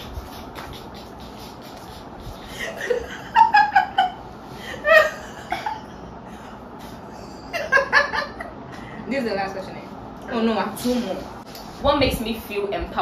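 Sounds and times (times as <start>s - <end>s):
women giggling: 2.5s - 8.7s.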